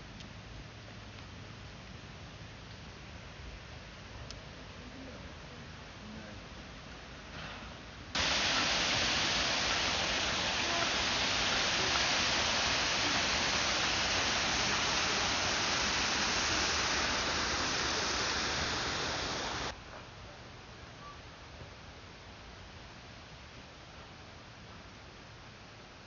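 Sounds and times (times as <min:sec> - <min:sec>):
running water rushing: 0:08.2 - 0:19.8.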